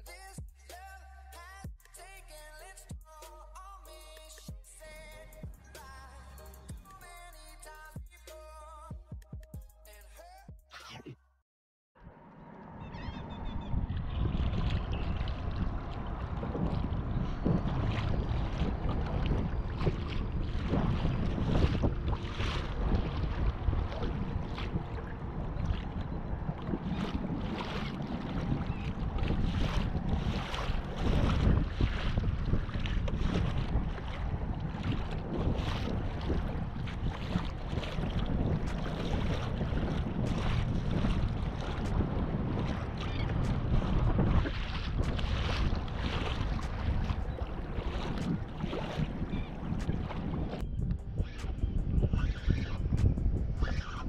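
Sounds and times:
wind buffeting microphone: 12.5 - 54.0
waves slapping plastic kayak hull: 13.9 - 50.6.

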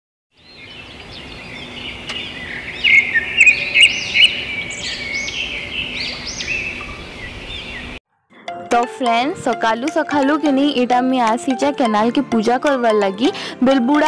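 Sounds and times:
songbirds chirping: 0.4 - 8.0.

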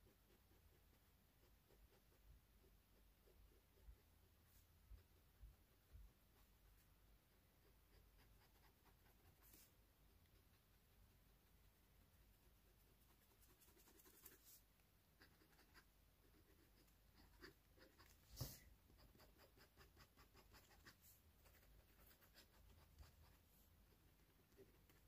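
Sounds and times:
fountain pen scratching paper: 13.0 - 14.6, 15.2 - 23.6.

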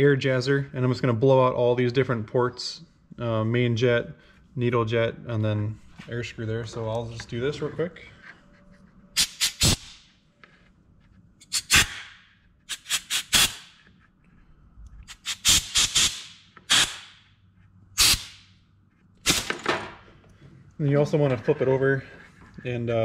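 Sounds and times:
compressed air blow gun hissing blasts: 12.7 - 13.7, 15.1 - 17.1, 18.0 - 18.4.

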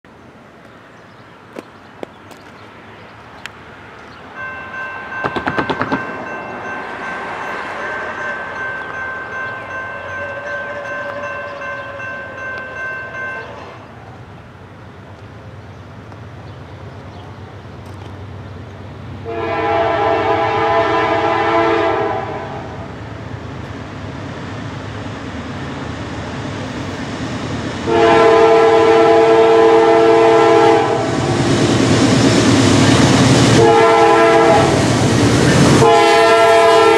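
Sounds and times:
train rumble: 0.1 - 36.9
locomotive air horn: 7.6 - 8.6, 9.9 - 12.4, 19.2 - 22.8, 27.9 - 31.2, 33.5 - 34.8, 35.6 - 36.9.

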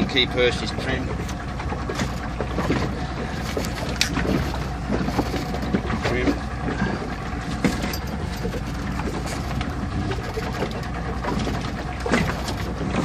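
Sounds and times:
wind rumble on microphone: 2.0 - 13.0.

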